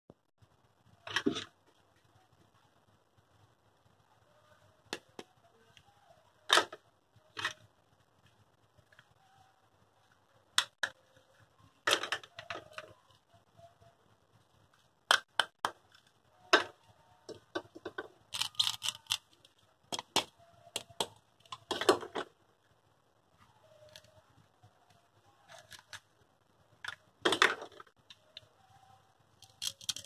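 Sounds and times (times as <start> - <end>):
plastic toy pieces clicking: 17.6 - 19.4, 29.4 - 30.0.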